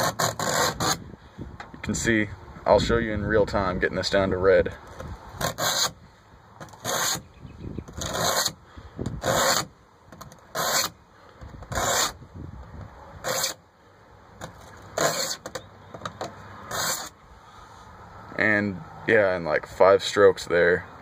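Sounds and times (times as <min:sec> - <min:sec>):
blade scraping metal panel: 0:00.0 - 0:01.0, 0:04.9 - 0:06.0, 0:06.6 - 0:07.3, 0:07.9 - 0:11.0, 0:11.6 - 0:12.2, 0:13.2 - 0:13.6, 0:14.4 - 0:17.2.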